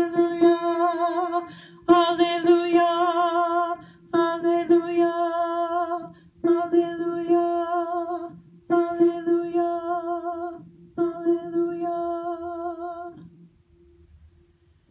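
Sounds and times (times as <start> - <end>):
singer breathing: 1.5 - 1.9, 3.8 - 4.1.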